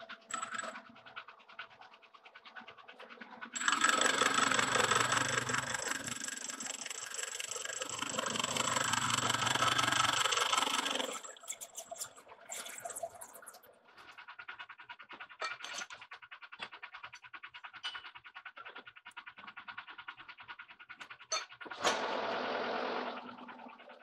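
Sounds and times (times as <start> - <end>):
lathe running with light ticking: 0.0 - 12.6, 13.9 - 24.0.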